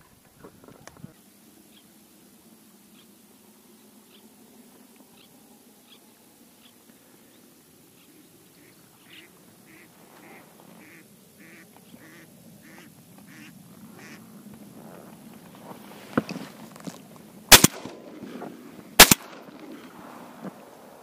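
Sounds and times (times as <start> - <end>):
duck quacks: 8.6 - 14.2.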